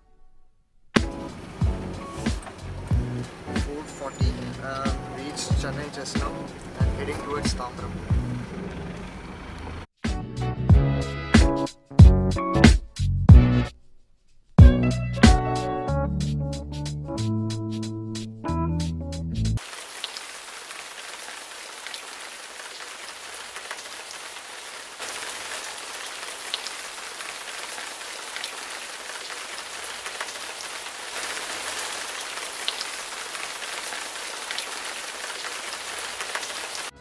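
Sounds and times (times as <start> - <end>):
rain on car windshield: 1.0 - 7.9, 19.6 - 36.9.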